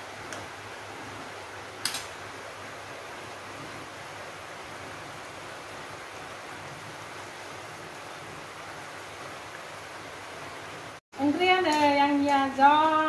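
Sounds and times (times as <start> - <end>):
curry simmering hiss: 0.0 - 13.0.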